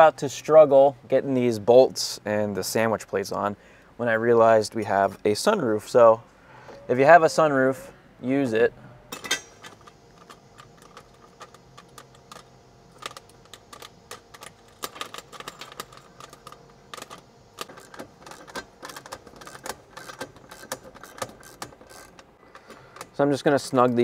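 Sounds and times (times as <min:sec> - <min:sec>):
metal bolt hardware clinking: 0:09.1 - 0:23.1.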